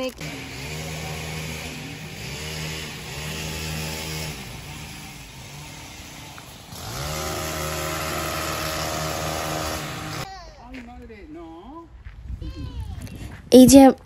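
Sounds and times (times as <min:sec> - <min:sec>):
hedge trimmer engine revving: 0:00.0 - 0:10.3.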